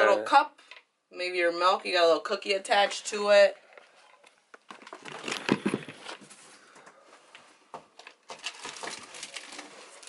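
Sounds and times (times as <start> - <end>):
packaging rustling: 3.9 - 10.0.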